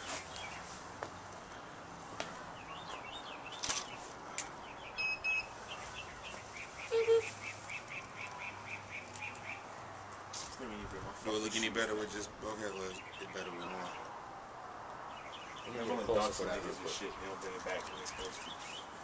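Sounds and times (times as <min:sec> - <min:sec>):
bird chirping: 0:02.5 - 0:09.8, 0:12.6 - 0:14.2, 0:15.0 - 0:19.0.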